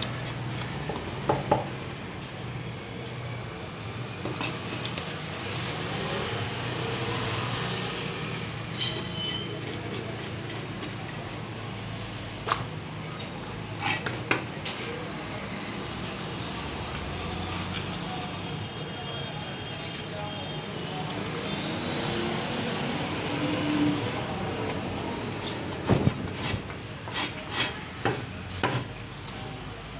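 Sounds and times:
knife scraping fish scales: 0:08.8 - 0:11.4, 0:13.4 - 0:14.2, 0:17.2 - 0:18.4, 0:26.2 - 0:27.8.

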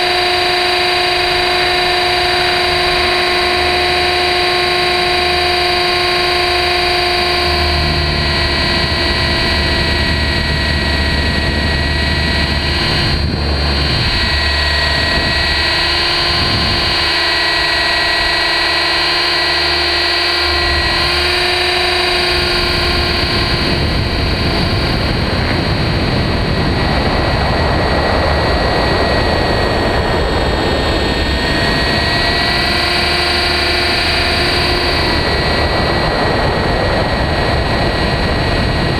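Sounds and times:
model helicopter motor whining: 0:00.0 - 0:38.9.

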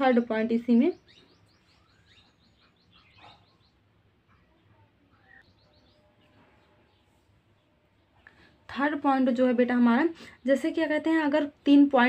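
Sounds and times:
faint bird chirps: 0:00.6 - 0:08.6
whistled bird notes: 0:01.0 - 0:03.8.

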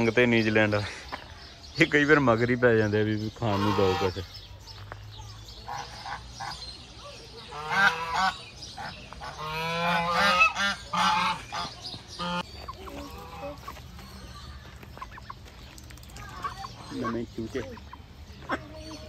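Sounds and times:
geese honking: 0:03.5 - 0:04.3, 0:07.4 - 0:13.8, 0:16.3 - 0:19.0.

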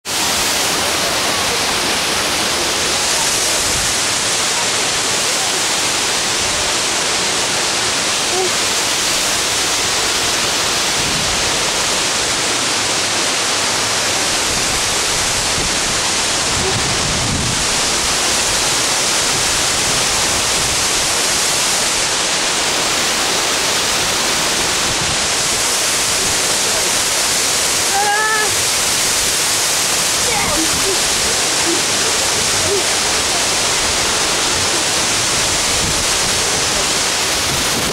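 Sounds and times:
waterfall rushing: 0:00.0 - 0:37.9
person's voice: 0:08.2 - 0:08.6, 0:26.2 - 0:27.1, 0:27.9 - 0:28.6, 0:30.2 - 0:35.2.

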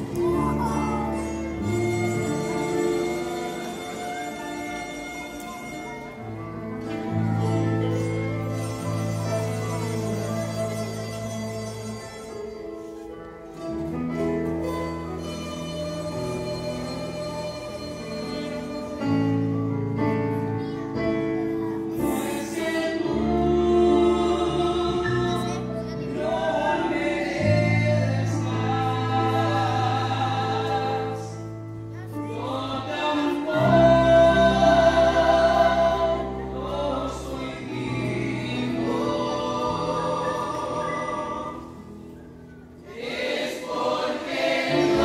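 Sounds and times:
mixed choir singing: 0:22.0 - 0:31.5, 0:32.1 - 0:41.9, 0:42.8 - 0:45.0.

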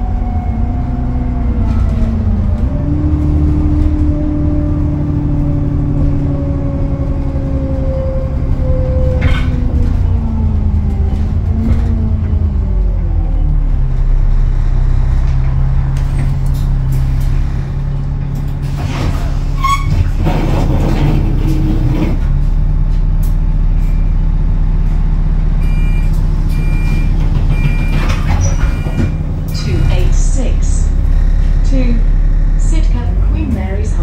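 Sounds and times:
bus diesel engine idling: 0:00.0 - 0:34.0
short high beeps: 0:28.7 - 0:30.2.

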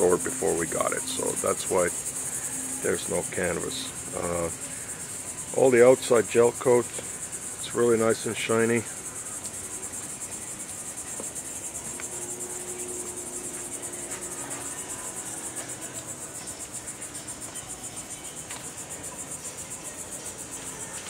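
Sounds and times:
insect chorus chirring: 0:00.0 - 0:21.0.

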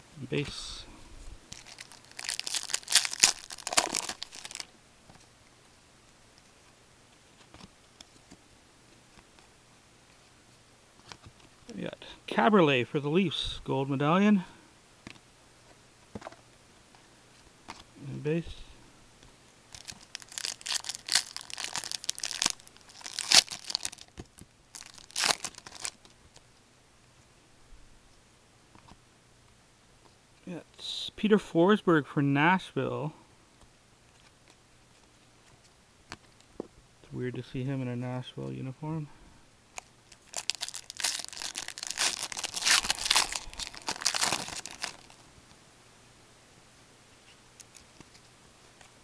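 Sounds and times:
foil wrapper crinkling and tearing: 0:01.5 - 0:04.7, 0:19.7 - 0:26.1, 0:39.8 - 0:45.2.

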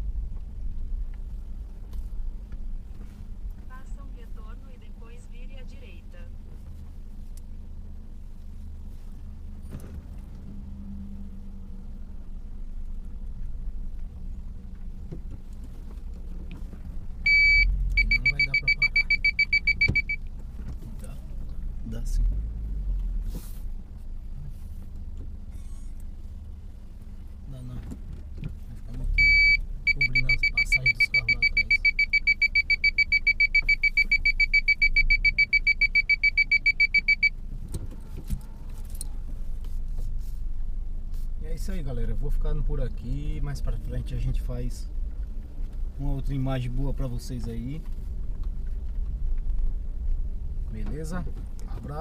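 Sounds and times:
low car rumble: 0:00.0 - 0:52.0
car warning beeps: 0:17.2 - 0:20.4, 0:29.0 - 0:37.4.

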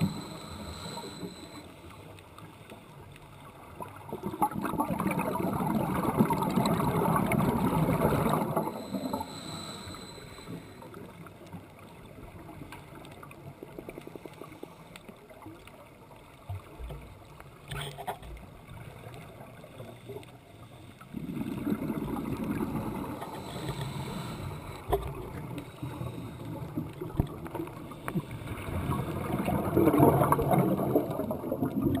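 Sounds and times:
exhaled breath bubbling underwater: 0:00.0 - 0:01.6, 0:04.0 - 0:11.0, 0:21.1 - 0:32.0
thin hiss of inhaled breath: 0:00.0 - 0:01.9, 0:08.6 - 0:11.0, 0:23.0 - 0:26.7.

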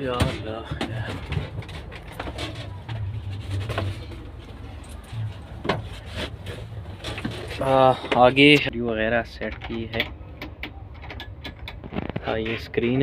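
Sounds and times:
low steady rumble: 0:00.2 - 0:08.9.

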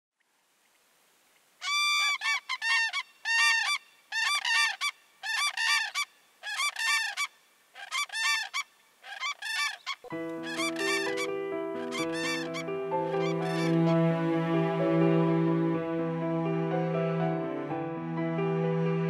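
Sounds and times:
cranes trumpeting calls: 0:01.6 - 0:14.1.

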